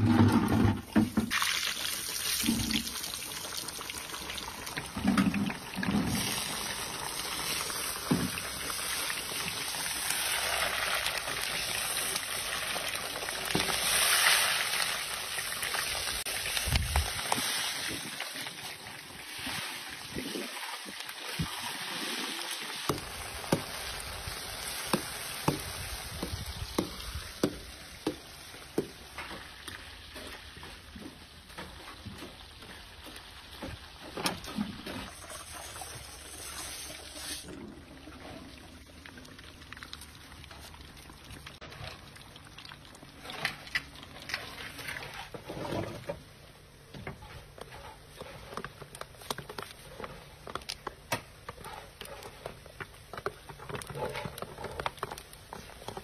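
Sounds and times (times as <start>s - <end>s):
hot oil sizzling and bubbling: 0.4s - 56.0s.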